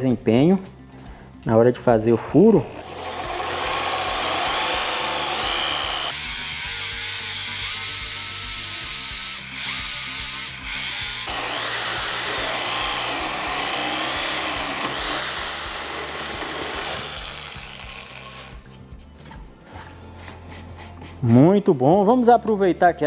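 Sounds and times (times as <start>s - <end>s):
drill boring into wood: 2.6s - 18.6s.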